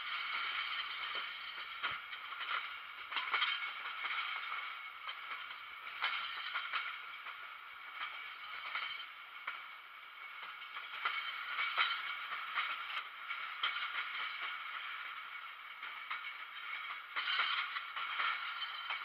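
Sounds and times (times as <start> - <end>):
train wheels clacking over rail joints: 0.0 - 19.0.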